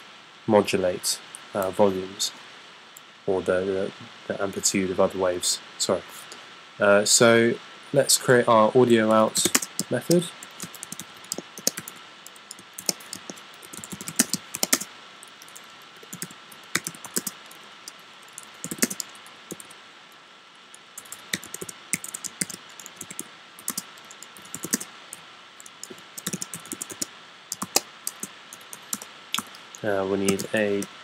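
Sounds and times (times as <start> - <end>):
keyboard typing: 9.0 - 19.8, 21.0 - 24.9, 25.6 - 30.9.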